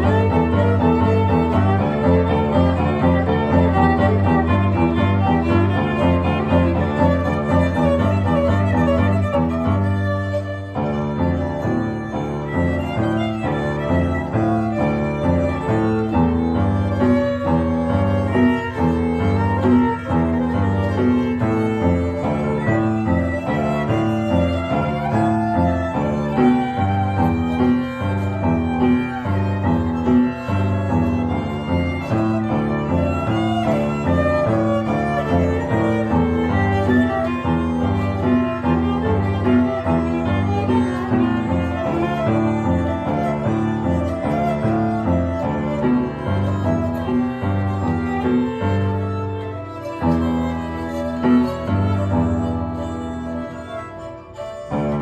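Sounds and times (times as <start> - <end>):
upright piano chords: 0.0 - 55.0
violin melody: 0.0 - 55.0.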